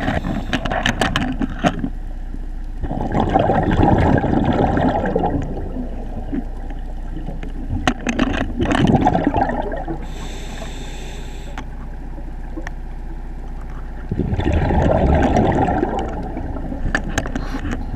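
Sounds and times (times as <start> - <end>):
regulator hissing inhale: 0.0 - 0.6, 10.0 - 11.7
steady low hum: 0.0 - 17.9
exhaled bubbles gurgling: 2.8 - 17.9.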